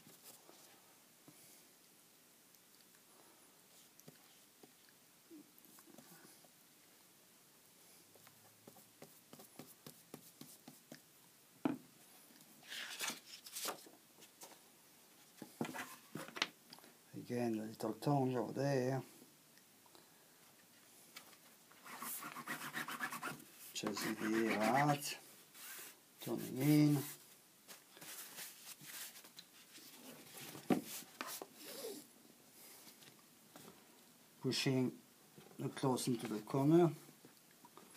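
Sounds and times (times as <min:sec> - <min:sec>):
cloth rubbing and rustling: 0:21.8 - 0:32.1.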